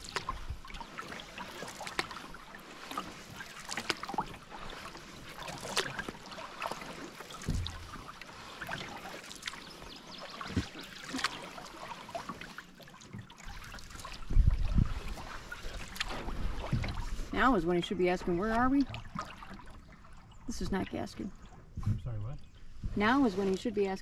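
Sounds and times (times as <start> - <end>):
water lapping against canoe: 0.0 - 24.0
low thumps: 7.4 - 8.1, 21.7 - 23.2.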